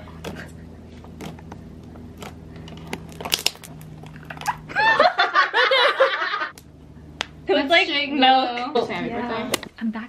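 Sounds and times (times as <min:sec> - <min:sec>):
steady low hum: 0:00.0 - 0:10.0
slime popping crackles: 0:02.2 - 0:04.6.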